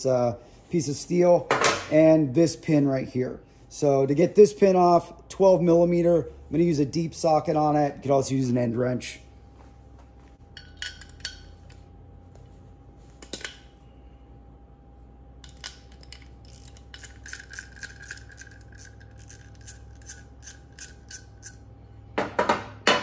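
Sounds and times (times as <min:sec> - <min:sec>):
hand ratchet clicking: 0:15.5 - 0:21.6.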